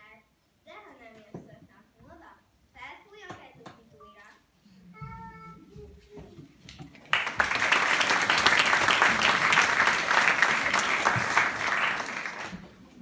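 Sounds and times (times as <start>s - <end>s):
audience applauding: 7.0s - 13.0s.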